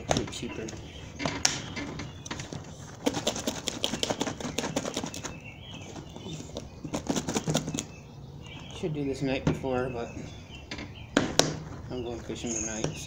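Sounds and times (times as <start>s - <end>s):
plastic container rattling when shaken: 3.0s - 6.2s, 6.8s - 7.9s.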